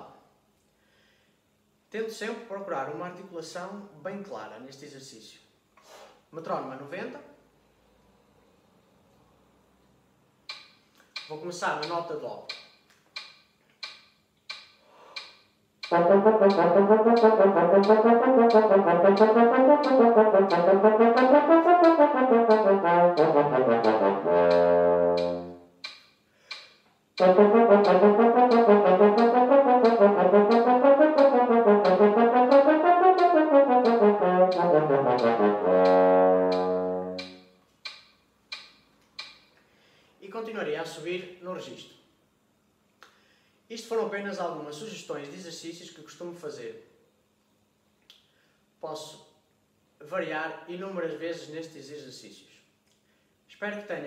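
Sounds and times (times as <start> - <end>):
metronome ticking: 10.5 - 26.6, 27.2 - 39.4
french horn playing scales: 15.9 - 25.7, 27.2 - 37.5.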